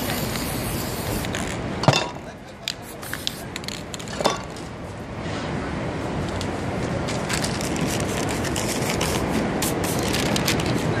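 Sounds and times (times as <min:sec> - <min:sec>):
street traffic: 0:00.0 - 0:11.0
newspaper crumpling: 0:07.1 - 0:09.3, 0:10.0 - 0:10.8.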